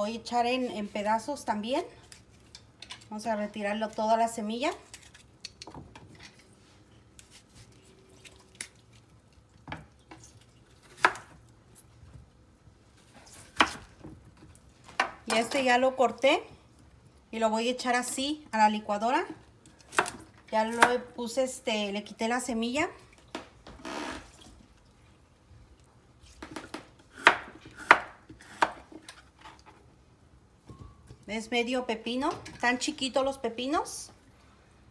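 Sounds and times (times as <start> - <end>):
knife chopping on wooden board: 27.1 - 29.0.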